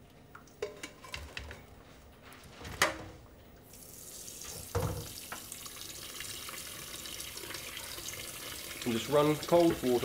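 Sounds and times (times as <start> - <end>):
water running into sink: 3.7 - 10.0.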